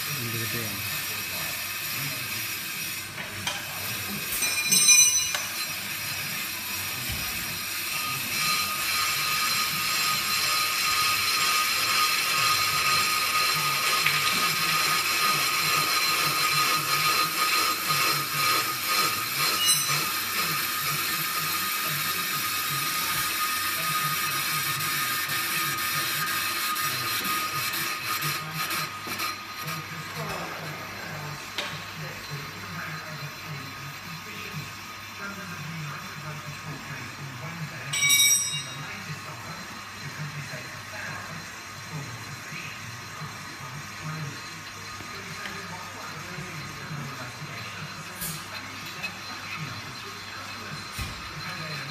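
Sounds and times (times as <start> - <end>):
brake lathe whirring and whining: 0.0 - 51.9.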